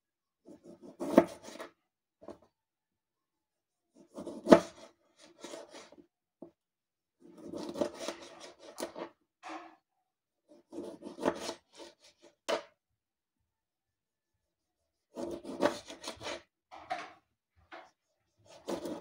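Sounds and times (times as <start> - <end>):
knife sawing through tomato: 4.0 - 6.0, 7.3 - 9.1, 10.6 - 12.5, 14.8 - 16.5, 18.1 - 19.0.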